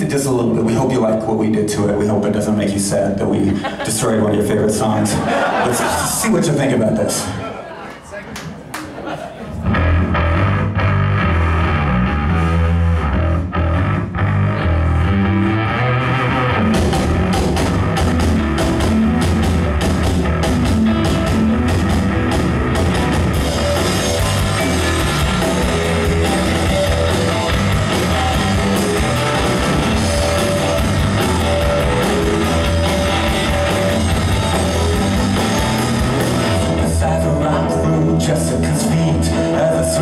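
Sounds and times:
drum kit: 0:09.6 - 0:37.8
loud electric guitar: 0:09.6 - 0:40.0.

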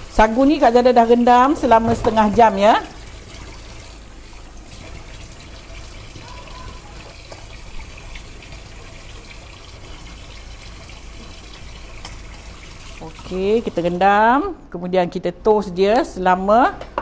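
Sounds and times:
water trickling into a sink: 0:01.6 - 0:14.0.

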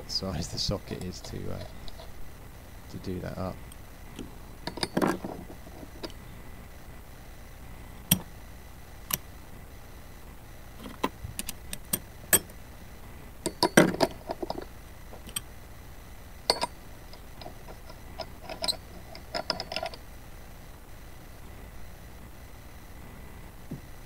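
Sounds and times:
steel sockets clicking and clinking: 0:03.7 - 0:06.2, 0:13.4 - 0:15.4, 0:16.5 - 0:20.0.

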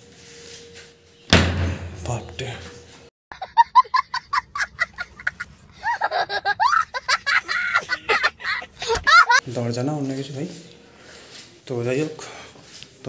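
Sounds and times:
person laughing: 0:03.3 - 0:09.4.

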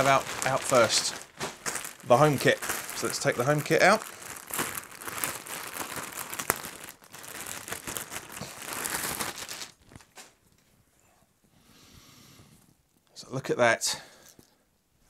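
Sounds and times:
plastic bag crinkling: 0:00.0 - 0:10.4.

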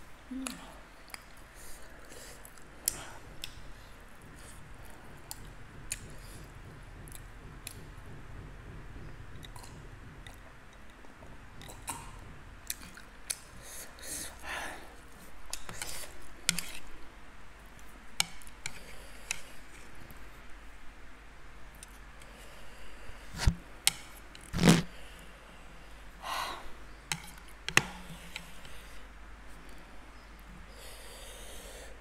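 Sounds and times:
person chewing food: 0:11.6 - 0:14.4.

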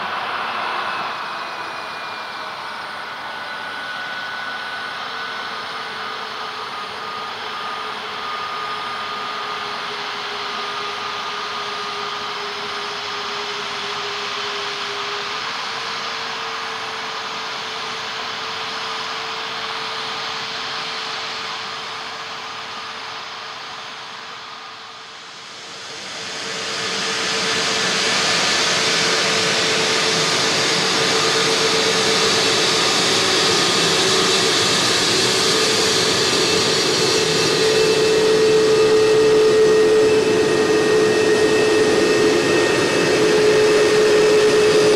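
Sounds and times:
jet engines whining at taxi power: 0:00.0 - 0:44.9.

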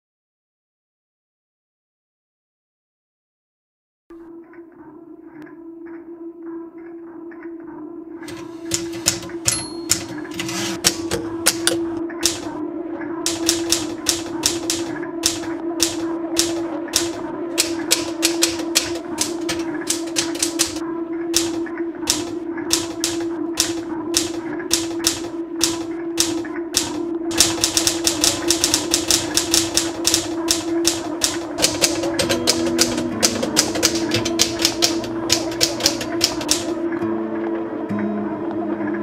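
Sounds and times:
held low notes: 0:07.9 - 0:39.0
typewriter keys striking: 0:08.3 - 0:12.6, 0:13.3 - 0:20.8, 0:21.4 - 0:36.8.

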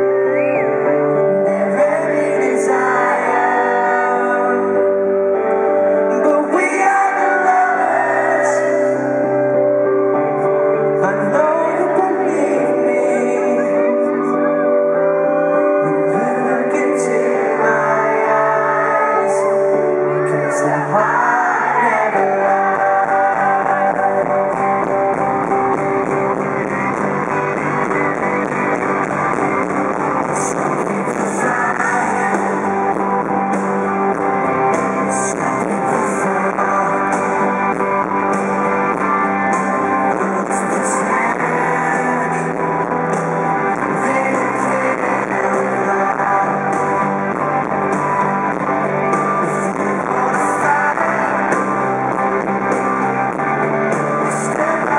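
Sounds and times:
man singing: 0:00.0 - 0:09.8, 0:10.4 - 0:54.9
strummed electric guitars: 0:00.0 - 0:54.9
drums: 0:18.9 - 0:54.9.

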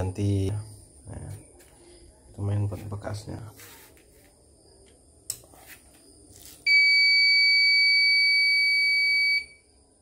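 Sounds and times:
long high-pitched beep: 0:06.7 - 0:09.7.

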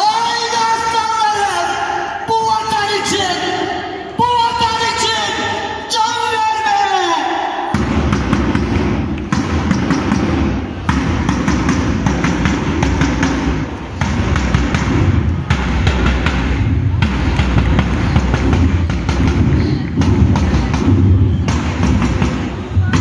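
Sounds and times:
bass drum heavy thumps: 0:07.8 - 0:23.0.

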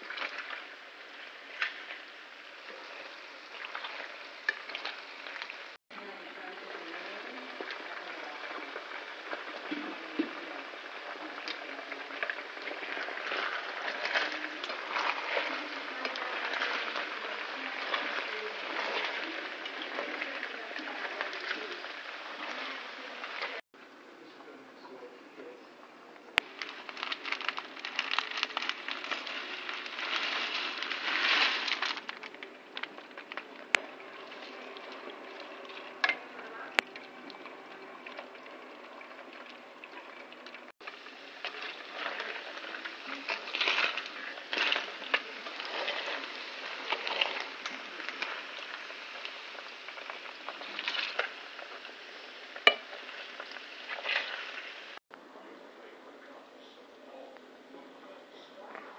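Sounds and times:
food frying in hot oil: 0:00.0 - 0:23.6, 0:26.4 - 0:55.0
plastic packet crinkling: 0:26.4 - 0:33.6
dry pasta pouring into pot: 0:26.4 - 0:54.8.

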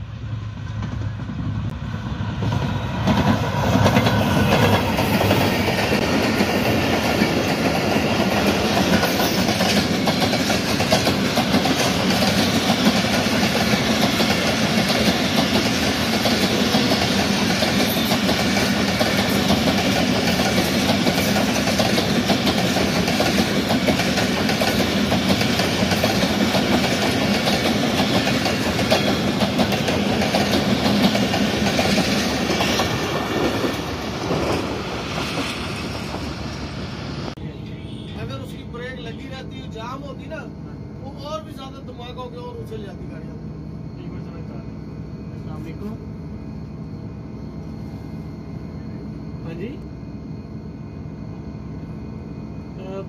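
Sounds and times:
train coaches rumbling: 0:00.0 - 0:51.0
diesel locomotive passing: 0:00.0 - 0:53.0
wheels clacking over rail joints: 0:03.0 - 0:35.5.

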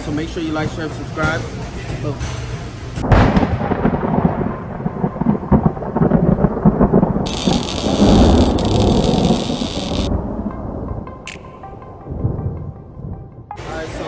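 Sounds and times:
rumbling thunder: 0:03.0 - 0:10.8
thunder crack: 0:03.0 - 0:10.8
rain-like hiss: 0:07.3 - 0:10.1.

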